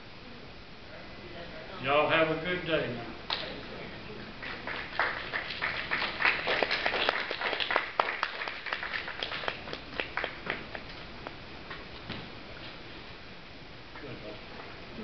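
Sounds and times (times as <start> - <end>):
audience applauding: 4.4 - 10.9.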